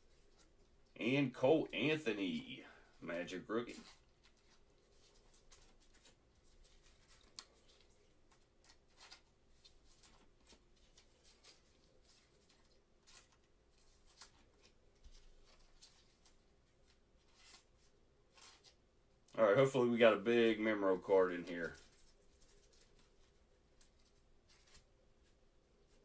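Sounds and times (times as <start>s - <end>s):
plastic card sleeves rustling: 0.0s - 19.0s, 19.6s - 26.0s.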